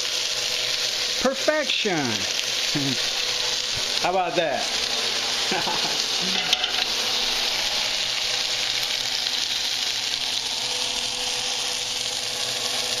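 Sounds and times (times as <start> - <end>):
oil sizzling in frying pan: 0.0 - 13.0.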